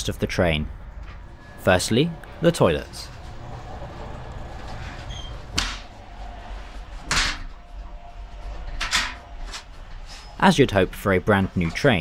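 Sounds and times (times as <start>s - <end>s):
train interior rumble: 0.0s - 12.0s.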